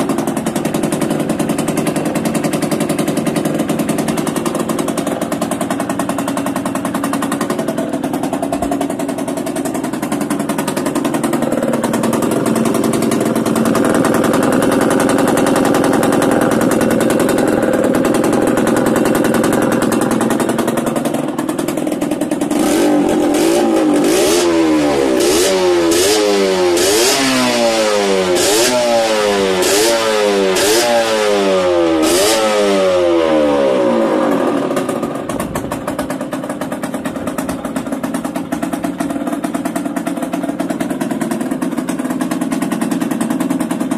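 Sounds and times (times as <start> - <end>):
two-stroke motorcycle engine revving: 0.0 - 43.9.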